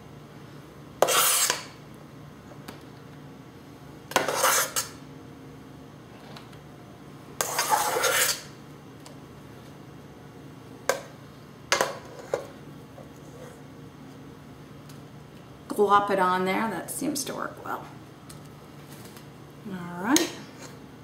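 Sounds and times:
spatula scraping a mixing bowl: 1.0s - 1.8s, 4.1s - 5.0s, 7.4s - 8.5s.

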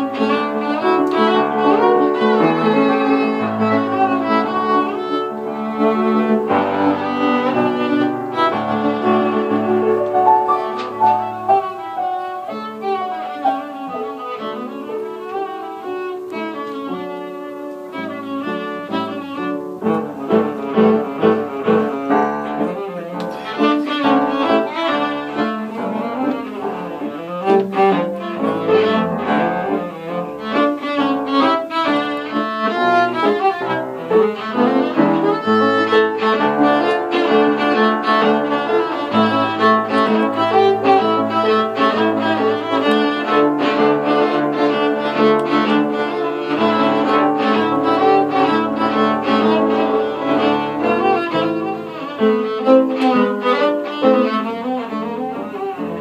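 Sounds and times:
cello bowed melody: 0.0s - 56.0s
piano accompaniment: 0.0s - 56.0s.

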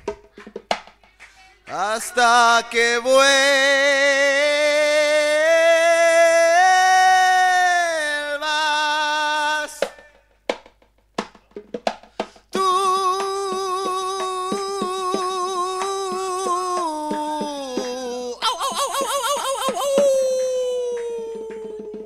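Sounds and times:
man singing long notes: 1.7s - 9.9s, 12.5s - 22.0s
percussion hits: 9.7s - 22.0s.

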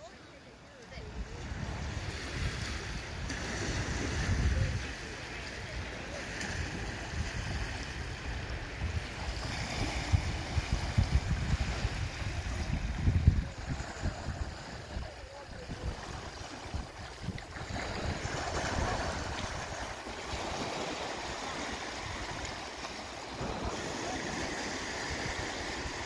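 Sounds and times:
small waves lapping at shore: 0.0s - 26.0s
wind buffeting microphone: 0.9s - 26.0s.

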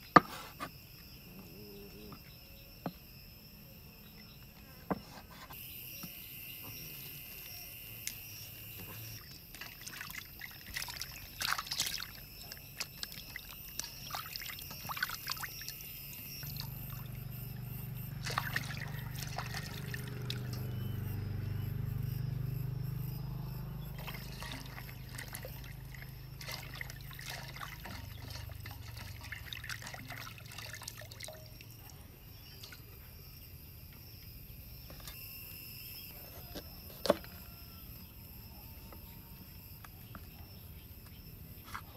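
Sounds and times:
crickets chirping: 0.0s - 41.9s
water splashing and dripping: 8.8s - 20.8s, 23.9s - 31.9s
low hum: 15.0s - 29.4s.

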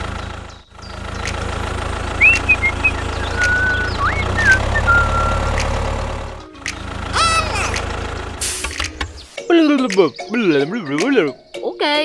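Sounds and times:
tractor engine running: 0.0s - 9.4s
bird chirps: 2.1s - 5.6s, 9.1s - 11.8s.

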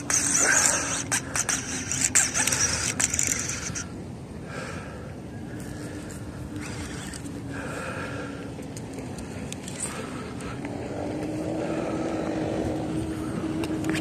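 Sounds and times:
fishing reel hissing and clicking: 0.0s - 3.9s, 6.0s - 7.4s.

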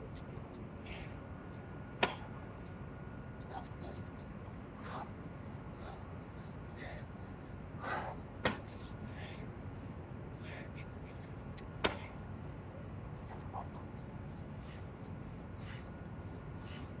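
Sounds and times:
man breathing hard: 0.8s - 1.2s, 3.5s - 11.3s, 13.3s - 17.0s.

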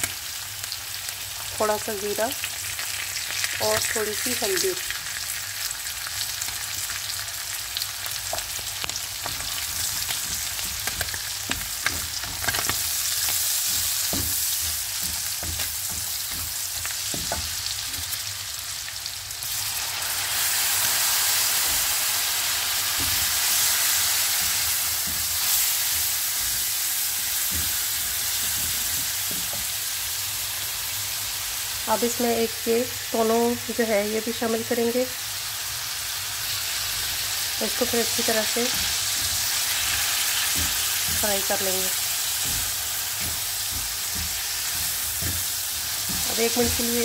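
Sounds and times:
food sizzling in a frying pan: 0.0s - 47.0s
spatula scraping and tapping a pan: 8.3s - 18.2s, 22.9s - 29.7s, 38.5s - 47.0s.

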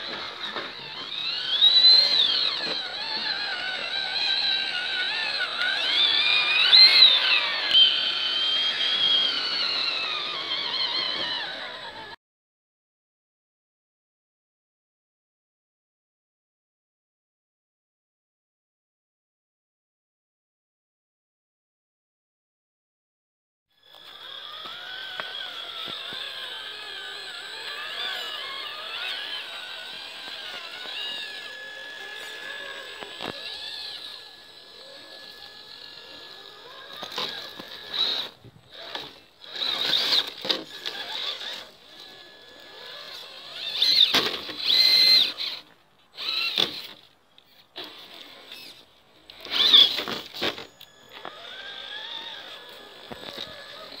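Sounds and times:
toy car electric motor whining: 0.0s - 12.2s, 23.7s - 54.0s.

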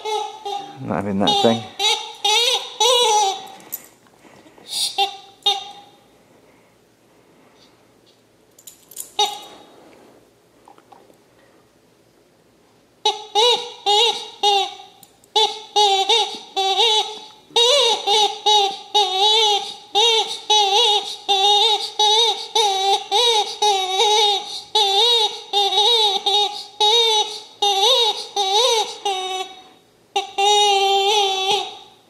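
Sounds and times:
squeaky dog toy: 0.0s - 3.8s, 4.7s - 6.0s, 9.0s - 9.7s, 13.0s - 32.0s.

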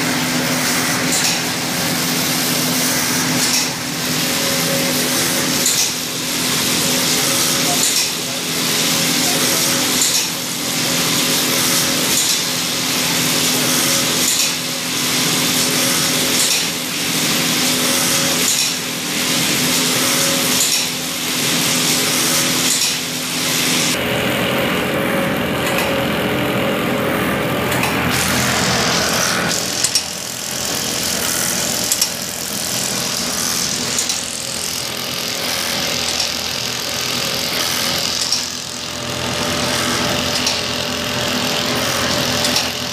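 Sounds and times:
stitching machine chattering: 1.0s - 24.0s, 28.1s - 42.9s
sharp click: 3.4s - 3.8s.

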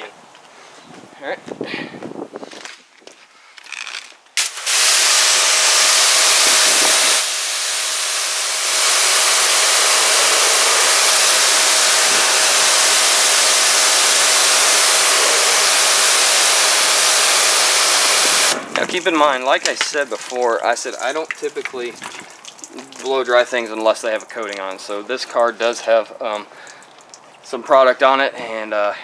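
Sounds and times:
pressure washer spray hiss: 4.4s - 18.7s.

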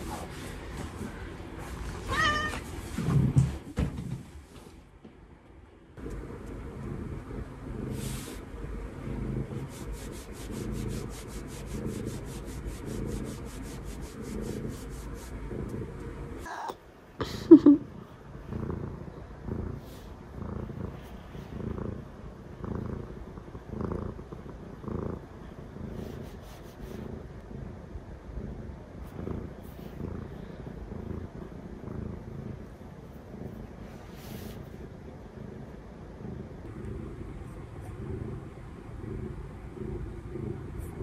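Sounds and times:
cat purring: 6.0s - 16.8s, 17.5s - 41.0s.

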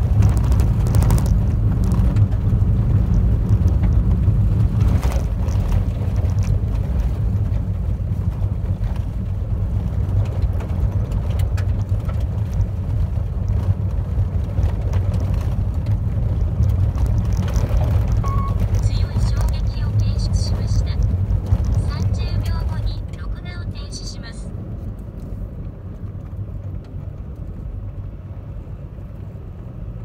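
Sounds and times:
tyres and road noise: 0.0s - 30.0s
light ticks of gravel: 10.1s - 18.8s.

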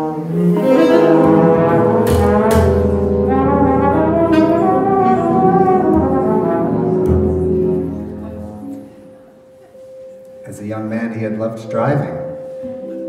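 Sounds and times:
brass horns holding chords: 0.0s - 9.4s.

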